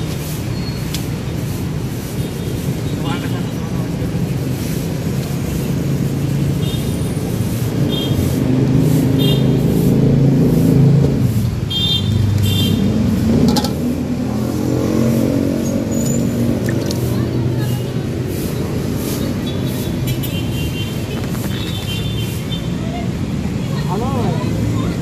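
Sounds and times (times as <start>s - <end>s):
traffic engines rumbling: 0.0s - 25.0s
engine speeding up: 8.4s - 11.4s, 12.8s - 17.6s.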